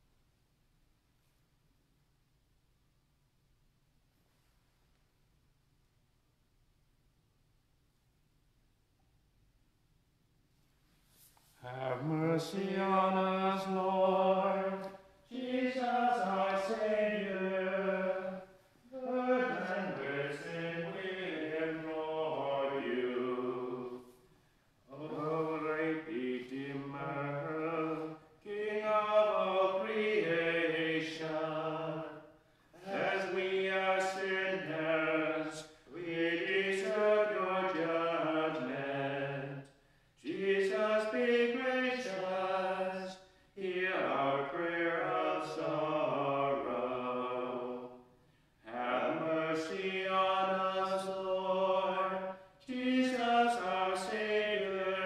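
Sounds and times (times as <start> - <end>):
men chanting a hymn: 11.6 - 24.0, 24.9 - 48.0, 48.6 - 55.0.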